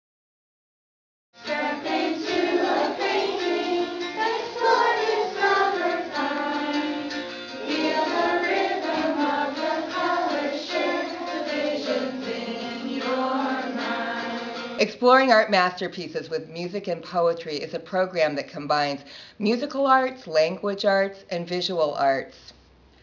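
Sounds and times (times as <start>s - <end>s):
group of voices singing: 1.4s - 14.8s.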